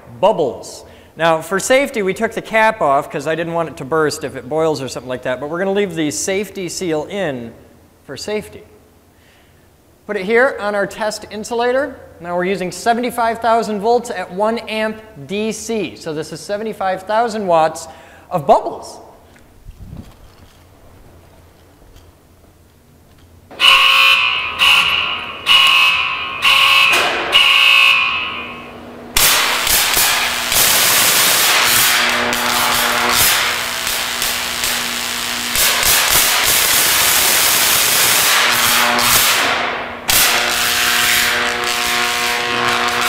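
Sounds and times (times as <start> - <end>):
mains hum: 0.0 - 43.0
pulsed warning alarm: 23.5 - 39.3, 40.1 - 43.0
electric arc striking: 23.5 - 43.0
high-voltage buzzing hiss: 29.2 - 43.0.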